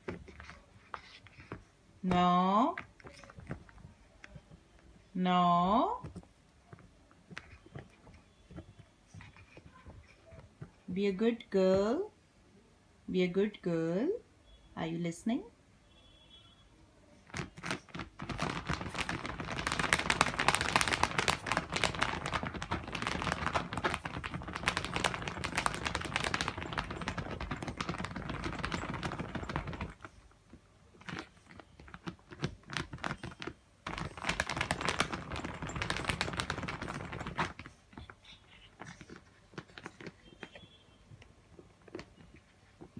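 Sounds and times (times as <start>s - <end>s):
puppy scratching with paws: 0.0s - 2.2s, 6.0s - 10.9s, 17.2s - 40.7s.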